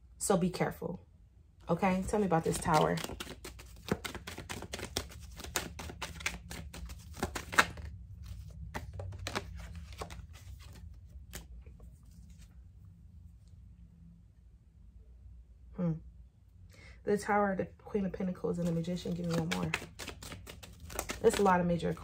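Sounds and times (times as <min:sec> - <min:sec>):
cards being shuffled: 0:01.9 - 0:12.5, 0:18.5 - 0:22.0.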